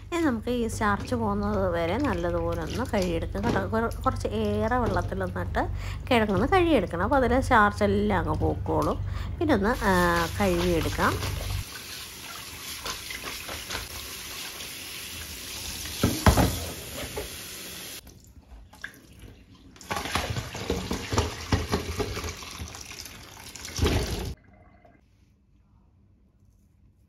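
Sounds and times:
water splashing on food: 9.8s - 16.6s
tap water running into sink: 9.9s - 18.1s, 18.8s - 24.4s.

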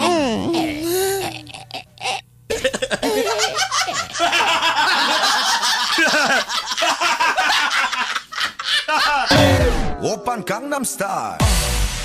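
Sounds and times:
people laughing: 2.5s - 9.6s.

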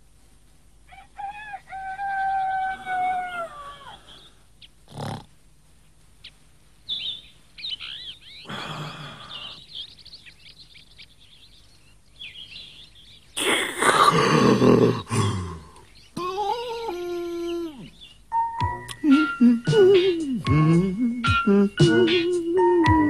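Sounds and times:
small birds chirping: 0.0s - 23.0s
rooster crowing: 0.9s - 4.3s.

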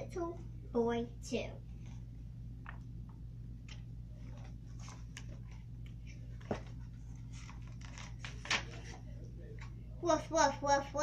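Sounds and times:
steady low hum: 0.0s - 11.0s
book pages rustling: 3.7s - 9.1s.

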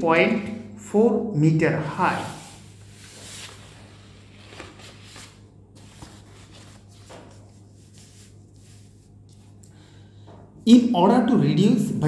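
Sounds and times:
low steady hum: 0.0s - 12.0s
paper rustling: 2.1s - 9.6s.

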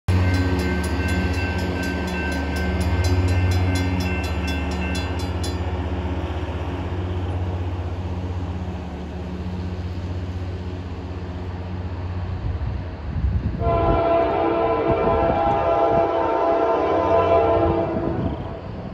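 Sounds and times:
railroad crossing bell ringing: 0.1s - 6.0s
diesel locomotive drone: 0.1s - 18.9s.

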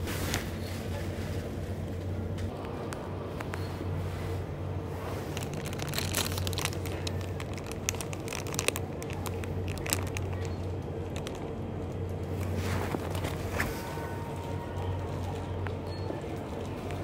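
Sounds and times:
steady low hum: 0.0s - 17.0s
plastic packaging crinkling: 5.0s - 13.8s.

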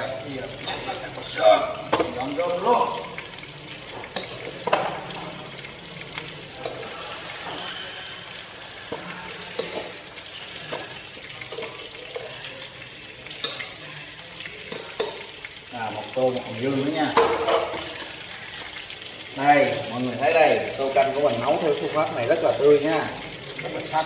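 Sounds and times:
fish sizzling in oil: 0.0s - 24.0s
metal pot clinking: 0.6s - 3.2s, 3.9s - 5.4s, 8.8s - 12.4s, 13.3s - 13.8s, 14.6s - 15.5s, 16.8s - 18.3s.

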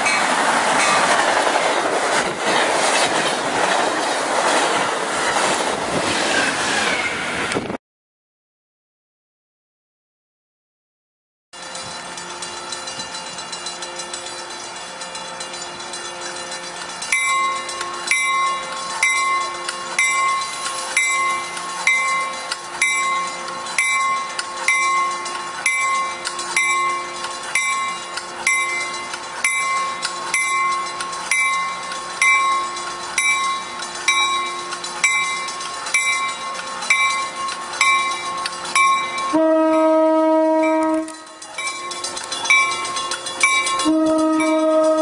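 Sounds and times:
railway warning bell ringing: 0.0s - 2.4s, 11.6s - 45.0s
train rumble: 0.0s - 7.8s, 11.6s - 45.0s.

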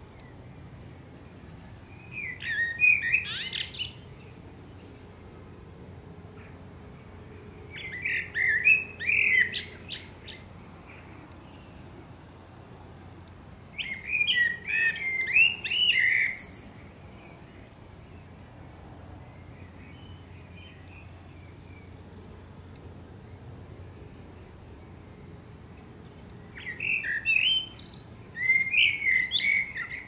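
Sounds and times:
blackbird singing: 1.8s - 4.4s, 7.7s - 22.0s, 26.4s - 30.0s.

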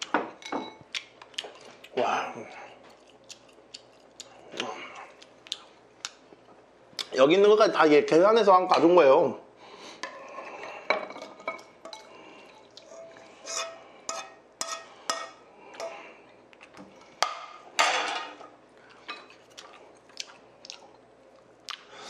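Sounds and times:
metal ladle clinking and scraping: 11.4s - 15.9s.

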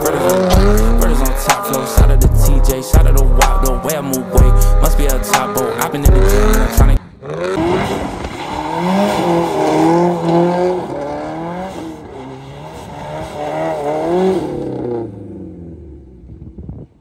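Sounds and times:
tyres spinning on asphalt: 0.0s - 1.9s, 5.2s - 15.8s
car engine revving hard: 0.0s - 16.4s.

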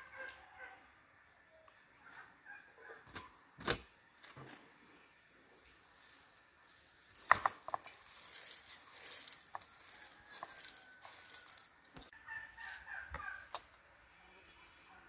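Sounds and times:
tea leaves pattering onto glass: 5.6s - 12.1s.

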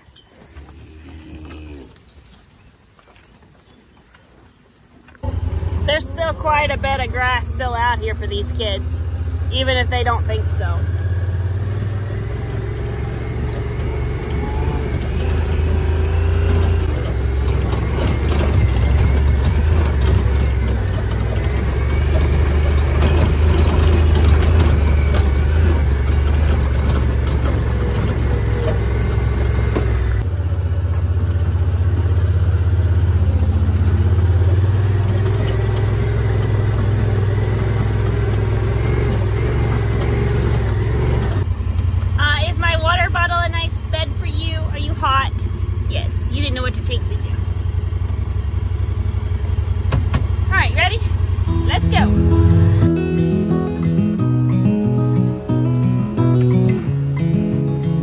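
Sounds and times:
utility vehicle engine drone: 5.0s - 58.0s
vehicle knocks and rattles: 11.4s - 43.5s, 46.5s - 51.6s.

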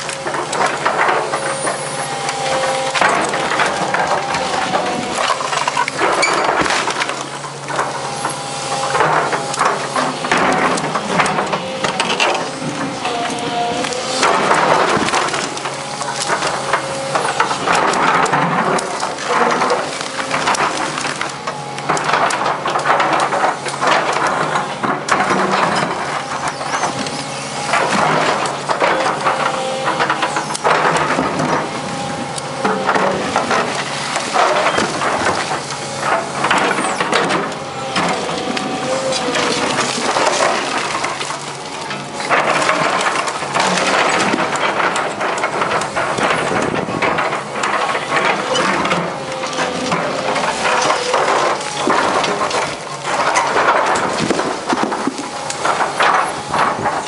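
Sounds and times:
concrete crunching and cracking: 0.0s - 57.0s
excavator engine running: 0.0s - 57.0s
hydraulic whine: 0.0s - 57.0s.

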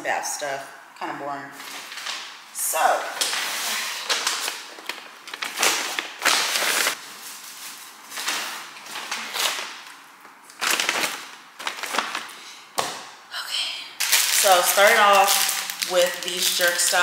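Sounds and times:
paper bag rustling: 3.2s - 10.0s, 10.6s - 12.5s, 14.0s - 17.0s.

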